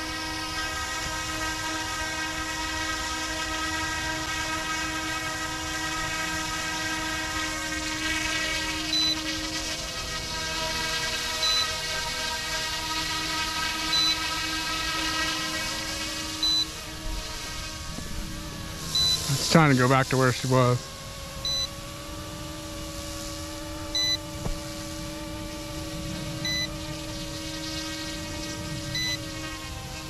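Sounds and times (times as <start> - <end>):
rc helicopter motor whine: 0.0 - 30.0
short high electronic beeps: 11.4 - 11.7, 13.9 - 14.2, 16.4 - 16.7, 19.0 - 19.4, 21.4 - 21.7, 24.0 - 24.2, 26.4 - 26.7.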